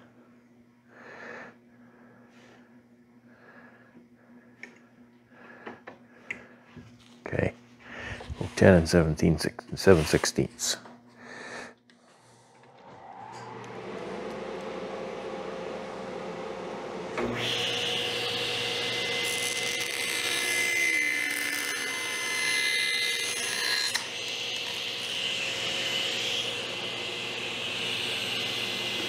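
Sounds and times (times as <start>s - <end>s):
power tool running: 12.3s - 29.0s
high whine: 12.6s - 17.4s.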